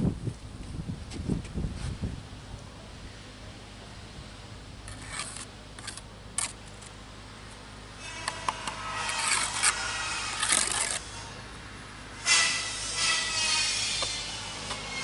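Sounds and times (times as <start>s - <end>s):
trowel scraping brick: 4.9s - 6.9s, 8.1s - 11.4s.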